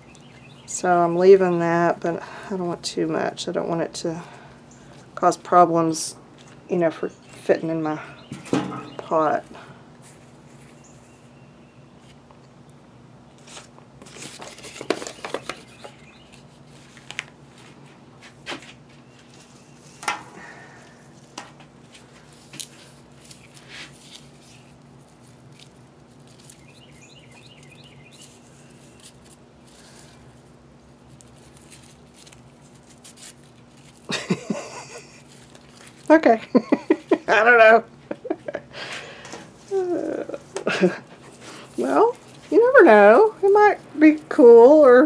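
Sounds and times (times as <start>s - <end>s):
paper rustling and tapping: 13.5s - 17.3s.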